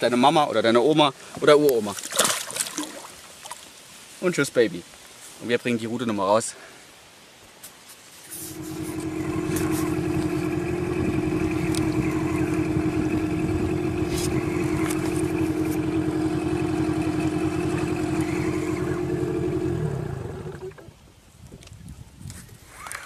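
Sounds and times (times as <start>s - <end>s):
small boat motor humming: 8.4s - 20.9s.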